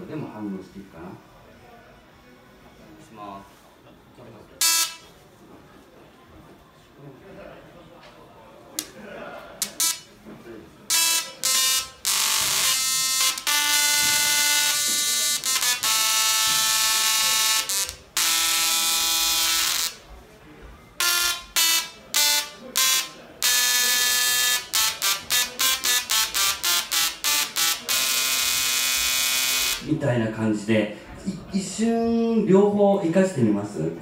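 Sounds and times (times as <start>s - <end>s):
musical tesla coil buzzing notes: 4.6s - 5.1s, 9.6s - 10.2s, 10.9s - 20.0s, 21.0s - 29.9s.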